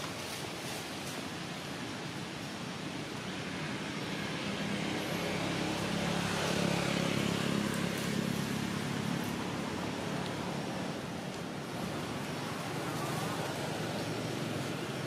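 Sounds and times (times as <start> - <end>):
steady outdoor hiss: 0.0 - 15.0
vehicle engine passing: 3.4 - 15.0.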